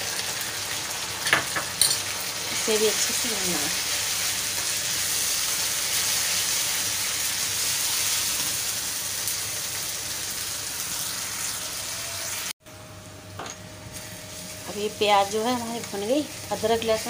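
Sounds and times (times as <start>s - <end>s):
paste sizzling in hot oil: 0.0s - 12.6s.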